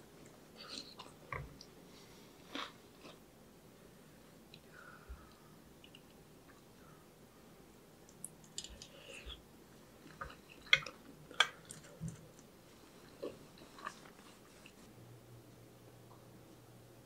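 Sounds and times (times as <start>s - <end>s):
soft chewing: 0.2s - 3.2s, 8.0s - 14.9s.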